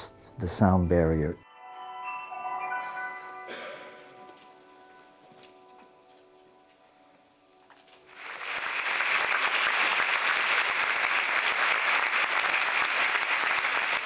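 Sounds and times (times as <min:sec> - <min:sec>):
audience applauding: 0:08.1 - 0:14.0.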